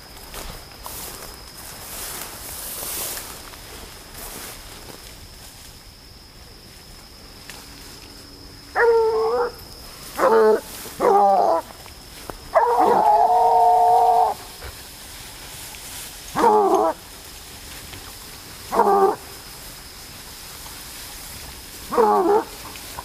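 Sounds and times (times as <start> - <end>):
hound baying: 8.7 - 9.6, 10.2 - 11.7, 12.5 - 14.5, 16.3 - 17.0, 18.7 - 19.2, 21.9 - 22.6.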